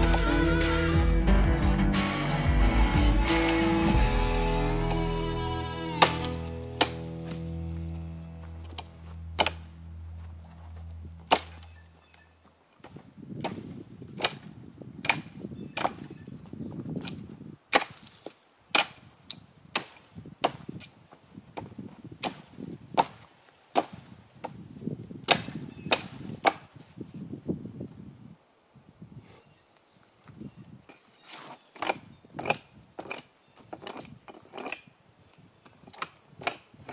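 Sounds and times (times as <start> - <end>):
background music: 0.0 - 10.2
chopping blows on wood: 6.0 - 7.4, 25.2 - 26.7.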